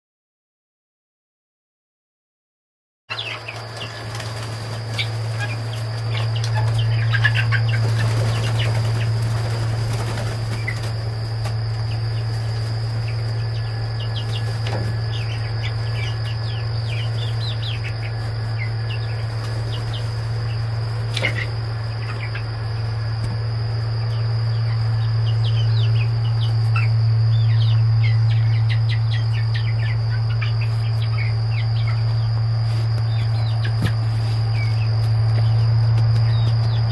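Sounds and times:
insect drone: 3.1 - 36.9
loud low hum: 3.1 - 36.9
young chickens peeping: 3.1 - 36.9
wings flapping: 3.2 - 15.0.

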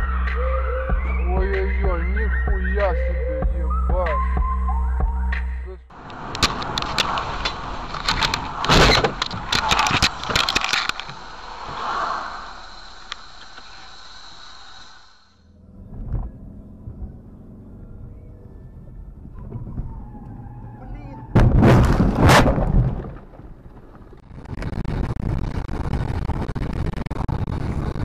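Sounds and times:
car engine and road noise: 4.4 - 22.4
loud collision impact: 21.4 - 23.3.

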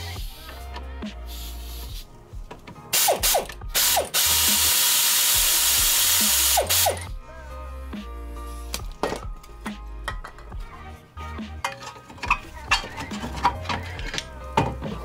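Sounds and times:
pneumatic air ratchet: 2.9 - 7.1.

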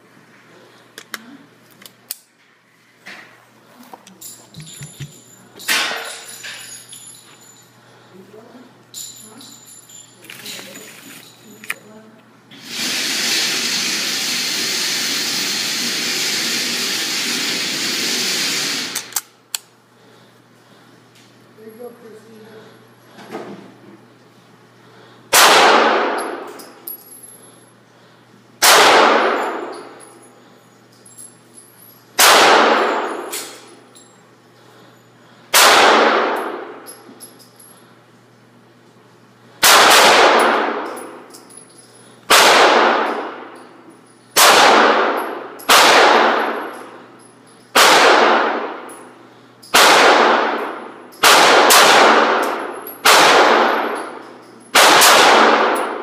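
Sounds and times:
pistol shots with ringing echo: 25.3 - 26.5, 28.6 - 29.8, 32.2 - 33.6, 35.5 - 36.9, 39.6 - 41.2, 42.3 - 43.6, 44.4 - 47.0, 47.7 - 48.9, 49.7 - 56.0.

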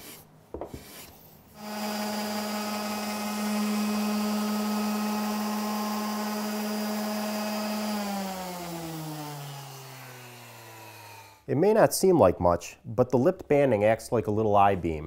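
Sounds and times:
electric sander humming: 1.6 - 11.4.

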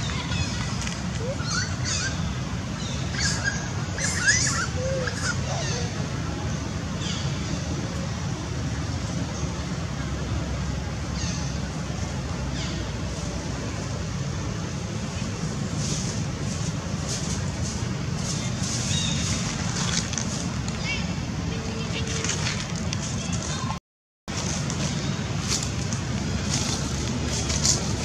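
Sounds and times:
animal chirps and squeaks: 2.9 - 5.9.

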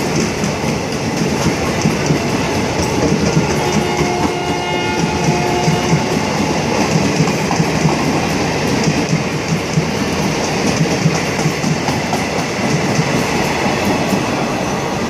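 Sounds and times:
wheels clacking over rail joints: 0.0 - 14.4
train passing with rushing rumble: 0.0 - 15.0.

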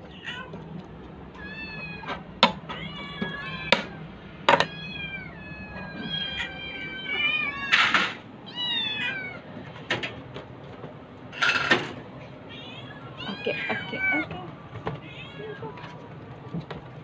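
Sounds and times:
cats meowing: 0.0 - 9.8, 11.4 - 16.7.

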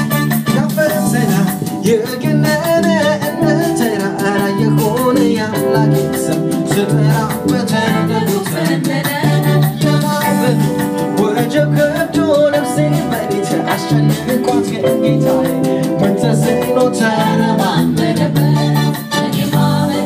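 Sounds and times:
drums with steady beat: 0.0 - 20.0
electric bass: 0.0 - 20.0
guitar: 0.0 - 20.0
keyboard: 0.0 - 20.0
women singing: 7.7 - 10.6, 16.6 - 20.0.

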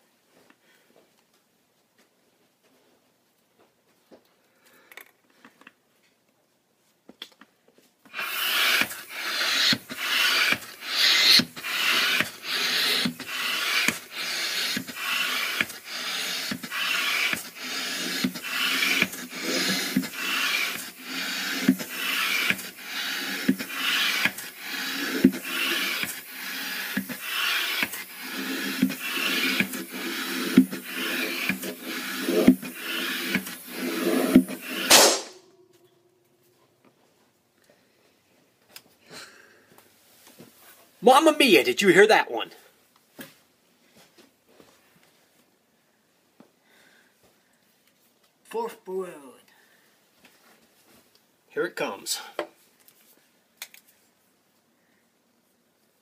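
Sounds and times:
hand air pump rushing air: 8.1 - 35.4
balloon bursting: 8.1 - 35.6.

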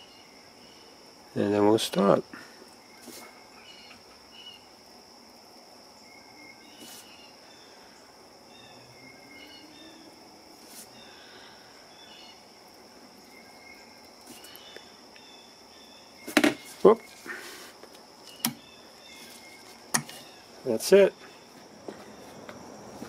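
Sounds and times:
bird chirps: 6.0 - 10.1, 18.2 - 22.4.

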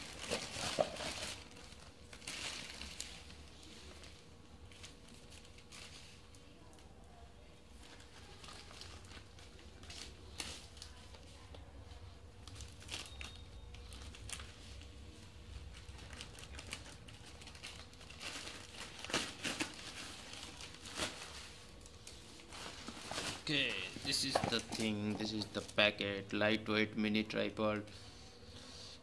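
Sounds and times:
plastic crinkling: 0.0 - 6.9, 7.7 - 25.9
scissors snipping plastic bag: 15.6 - 21.3.

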